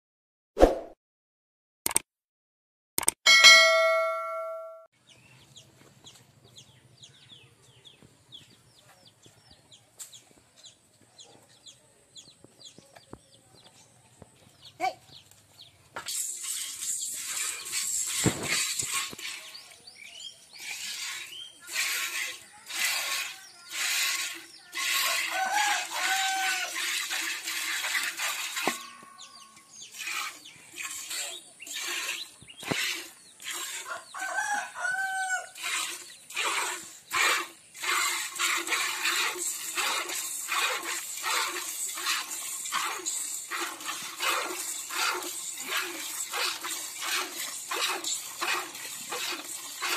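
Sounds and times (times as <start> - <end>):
milk squirting into metal pot: 16.1 - 19.8, 20.6 - 29.1, 29.9 - 33.8, 35.6 - 49.9
rooster crowing: 25.3 - 26.8, 33.9 - 35.5.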